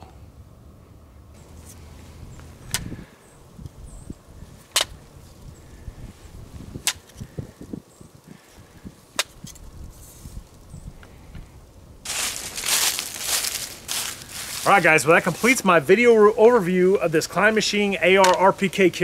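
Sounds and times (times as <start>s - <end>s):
handling rustle: 12.0s - 15.7s.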